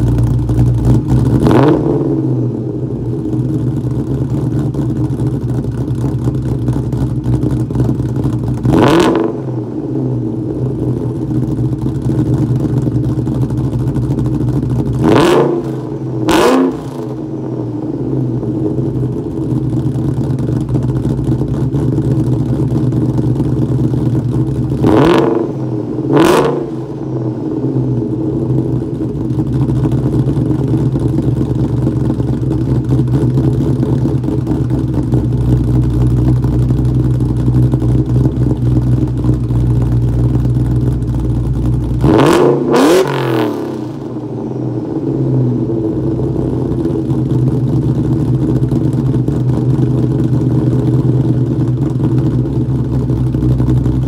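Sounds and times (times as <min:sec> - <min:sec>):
car engine idling: 0:00.0 - 0:54.0
engine revving: 0:00.8 - 0:02.8, 0:08.6 - 0:11.2, 0:14.9 - 0:17.6, 0:24.7 - 0:29.0, 0:41.7 - 0:47.8.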